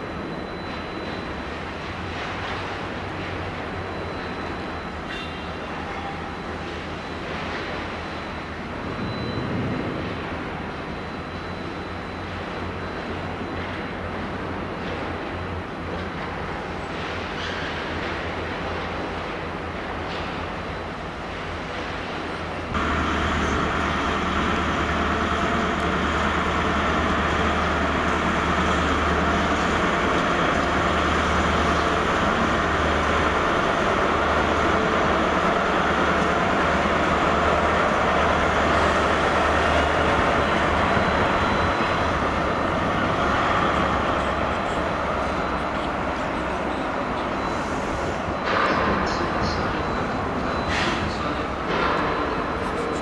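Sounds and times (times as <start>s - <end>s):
train rumble: 13.6s - 53.0s
diesel engine humming: 20.7s - 53.0s.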